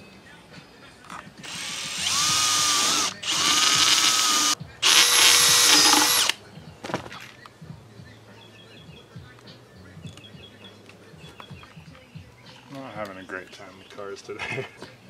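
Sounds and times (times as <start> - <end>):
cordless drill drilling through metal: 1.4 - 6.4.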